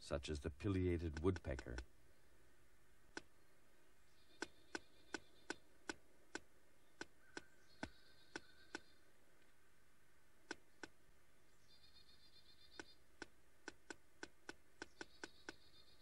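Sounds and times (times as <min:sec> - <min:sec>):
woodpecker tapping on wood: 0:01.0 - 0:01.9, 0:04.4 - 0:08.9, 0:12.7 - 0:15.8.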